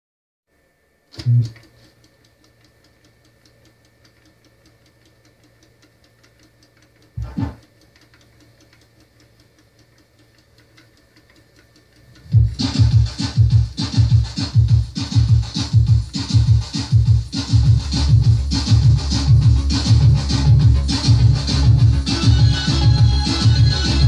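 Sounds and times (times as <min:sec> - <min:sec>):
faint steady hum: 0:00.5 - 0:24.0
rapid light ticking: 0:01.3 - 0:24.0
loud music from tape: 0:12.3 - 0:24.0.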